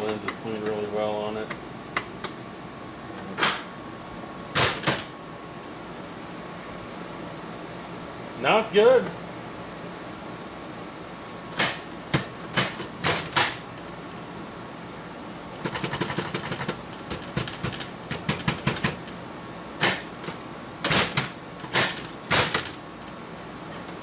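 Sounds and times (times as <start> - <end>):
metal door clicking and knocking: 4.6 - 5.1, 15.6 - 19.1, 20.2 - 22.8
door rattling and slamming: 20.9 - 22.8.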